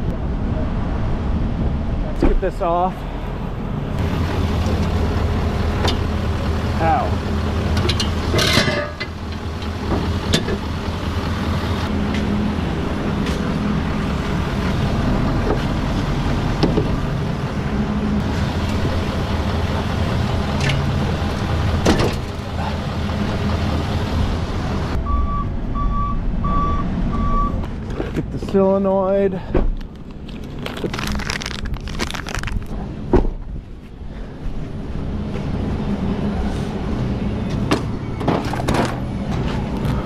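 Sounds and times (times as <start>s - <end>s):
sharp metal clanks: 7.8s - 9.1s.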